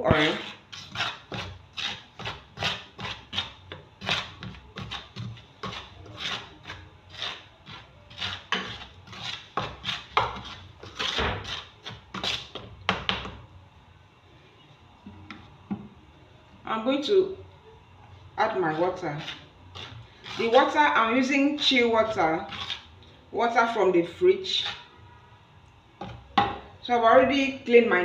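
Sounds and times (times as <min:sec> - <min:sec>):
metal spoon scraping a dish: 0:00.2 - 0:12.6, 0:18.7 - 0:22.9, 0:24.4 - 0:24.9.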